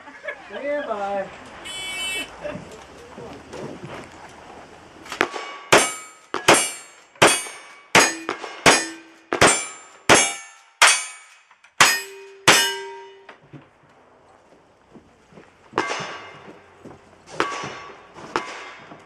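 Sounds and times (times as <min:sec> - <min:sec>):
steel target ringing: 0:05.5 - 0:13.3.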